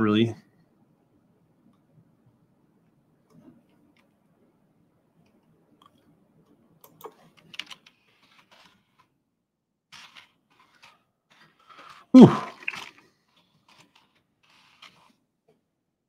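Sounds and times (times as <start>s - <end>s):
person exhaling whew: 12.2s - 12.6s.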